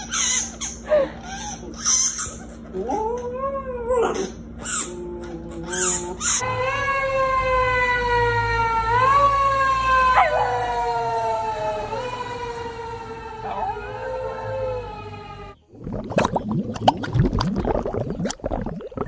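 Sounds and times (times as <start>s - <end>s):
fire engine siren wailing: 6.4s - 15.6s
dog howling: 10.0s - 15.6s.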